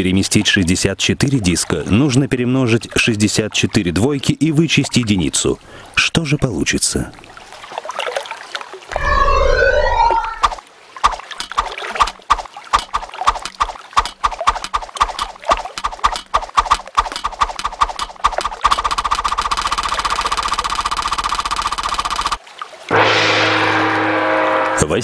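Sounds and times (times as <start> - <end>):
digital counter ticking: 12.0 - 22.4.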